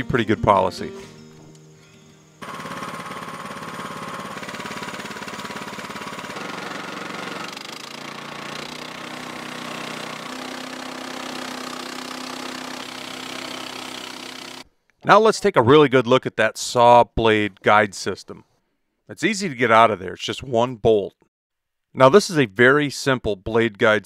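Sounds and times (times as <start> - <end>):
band saw blade cutting log: 2.4 - 14.6
gas engine running: 2.4 - 14.6.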